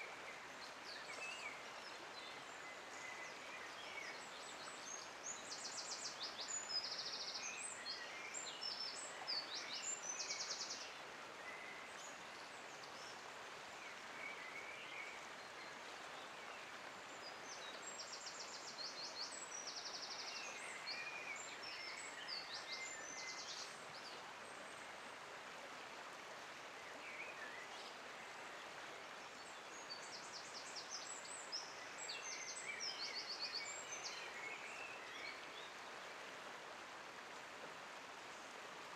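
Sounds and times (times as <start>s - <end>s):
outdoor background hiss: 0.0s - 38.9s.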